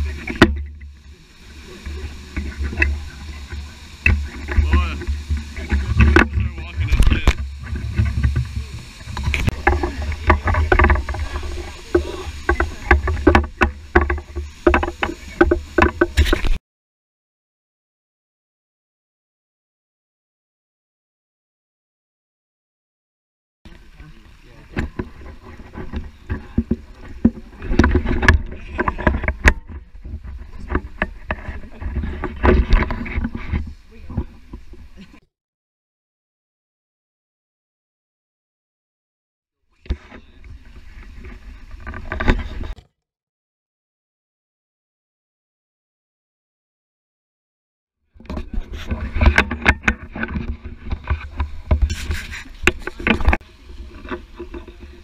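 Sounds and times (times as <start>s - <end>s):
camera handling knocks and rubbing: 48.3s - 53.4s.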